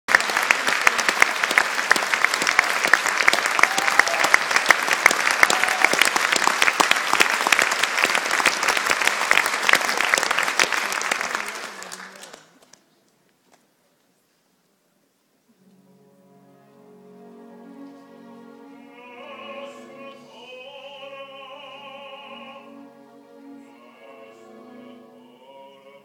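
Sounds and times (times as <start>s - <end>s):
audience applauding: 0.1s - 12.8s.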